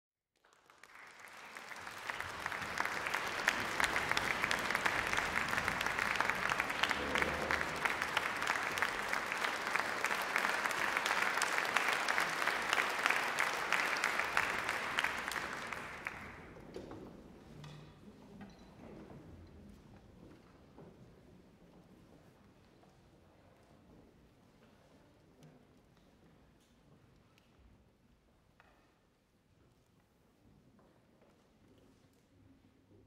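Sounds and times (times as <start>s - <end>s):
audience applauding: 0.4s - 16.6s.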